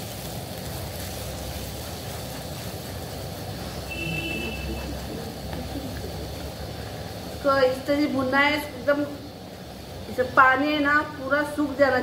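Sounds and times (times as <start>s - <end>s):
paste sizzling in oil: 0.0s - 12.0s
brief high tone: 3.9s - 5.0s.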